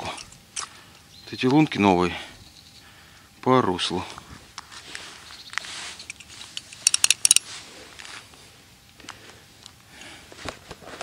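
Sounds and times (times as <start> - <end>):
sharp metallic clinks: 6.0 - 7.4
scattered clicks: 6.1 - 7.4.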